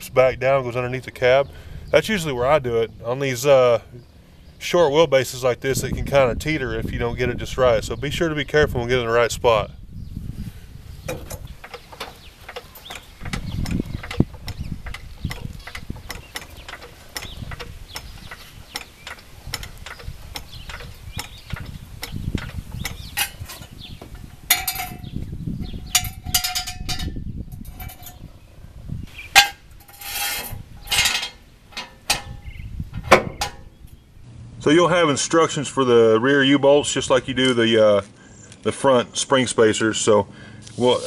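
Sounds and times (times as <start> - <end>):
jack handle strokes: 11.0 - 25.1, 29.1 - 33.7
metal clanks and rattles: 11.0 - 28.3, 29.2 - 34.0
hydraulic floor jack clicking: 11.1 - 23.8.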